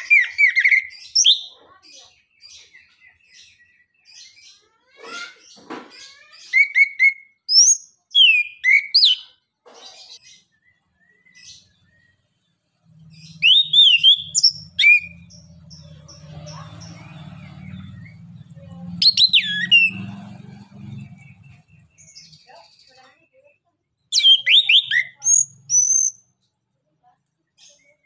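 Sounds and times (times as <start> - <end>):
low engine hum: 12.7 - 22.2
thrush singing chattering song: 12.8 - 23.0.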